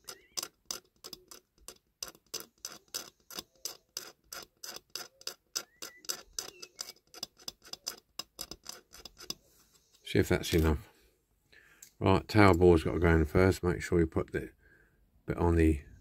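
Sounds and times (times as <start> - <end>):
hand tool scraping paint: 0.0 - 10.8.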